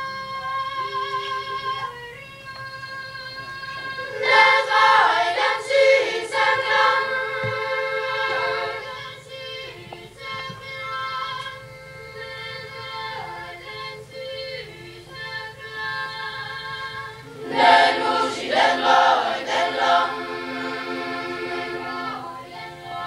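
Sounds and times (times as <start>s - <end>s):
boys' choir singing: 3.8s - 11.4s, 12.2s - 23.0s.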